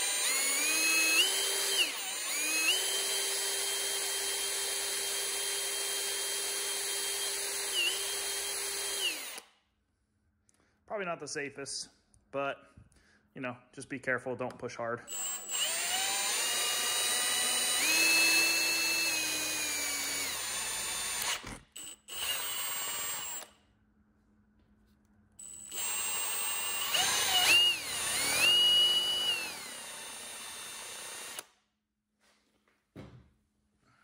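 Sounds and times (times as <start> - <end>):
cordless drill motor whine: 0.0 - 9.4, 15.1 - 23.5, 25.4 - 31.4.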